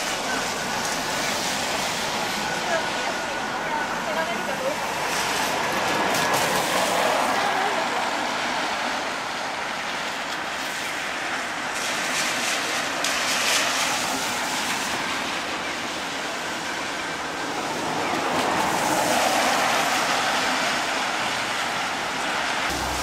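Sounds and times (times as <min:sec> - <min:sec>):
rain hiss: 0:00.0 - 0:23.0
tyres swishing on wet road: 0:00.0 - 0:23.0.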